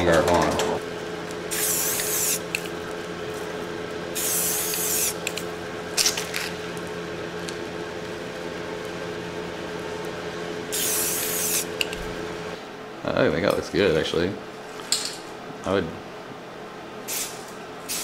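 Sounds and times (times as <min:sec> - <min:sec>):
steady low hum: 0:00.0 - 0:18.0
spray can hissing: 0:01.5 - 0:02.7, 0:04.2 - 0:05.4, 0:10.7 - 0:11.9, 0:17.1 - 0:18.0.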